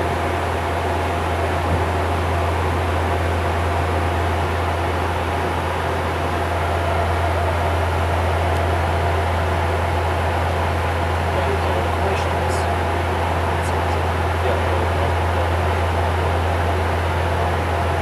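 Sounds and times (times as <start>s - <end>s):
deep propeller hum: 0.0s - 18.0s
engine and airflow hiss: 0.0s - 18.0s.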